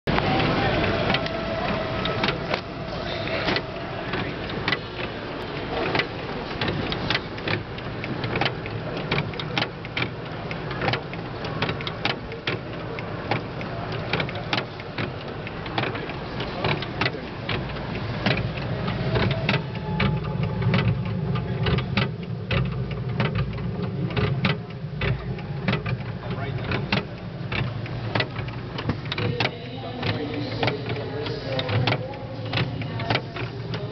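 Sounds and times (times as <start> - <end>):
mechanism clicks and knocks: 3.3 - 33.9
low hum: 15.3 - 33.9.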